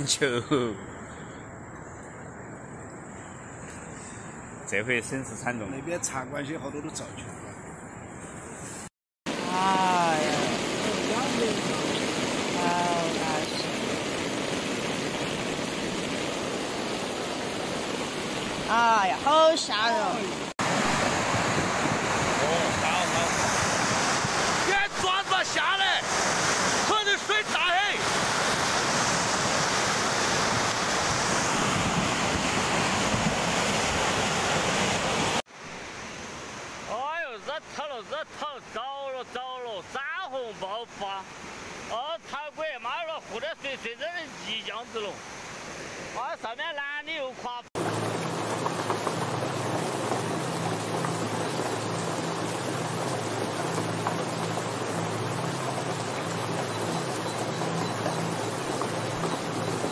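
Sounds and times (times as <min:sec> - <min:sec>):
heavy rain hissing: 0:09.3 - 0:46.4, 0:47.8 - 0:59.9
flood water rushing: 0:09.3 - 0:59.9
wind buffeting microphone: 0:20.1 - 0:24.7, 0:28.0 - 0:35.4.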